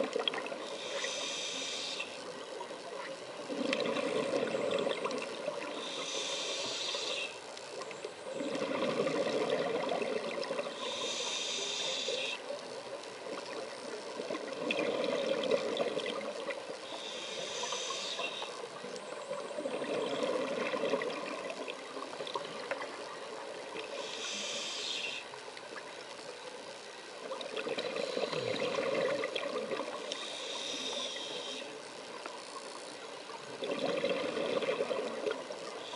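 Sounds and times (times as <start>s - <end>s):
regulator inhale hiss: 0.5s - 2.3s, 5.6s - 7.5s, 10.7s - 12.6s, 16.7s - 18.8s, 23.8s - 25.4s, 30.0s - 31.8s, 35.6s - 35.9s
exhaled air bubbling: 3.4s - 7.3s, 8.2s - 12.3s, 13.2s - 24.6s, 27.2s - 31.6s, 33.4s - 35.9s.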